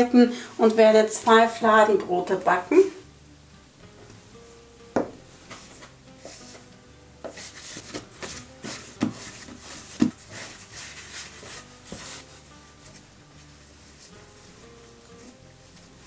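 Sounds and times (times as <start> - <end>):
quiet background music: 0.0 - 16.0
thumps on wooden board: 5.0 - 5.2
hands rubbing and slapping dough: 5.1 - 16.0.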